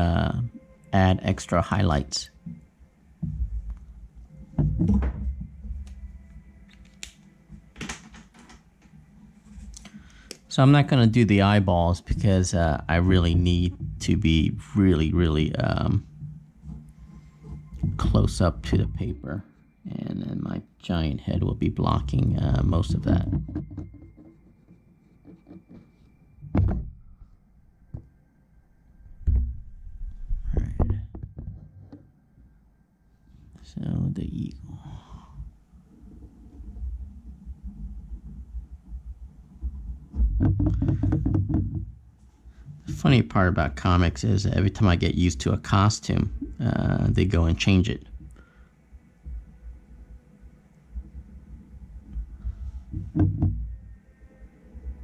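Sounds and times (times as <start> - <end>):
dull knock on desk: 40.2 - 41.9, 52.9 - 53.6.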